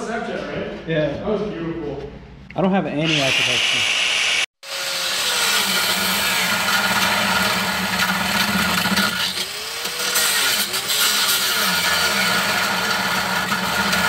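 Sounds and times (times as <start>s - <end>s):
angle grinder cutting metal: 3.0s - 14.0s.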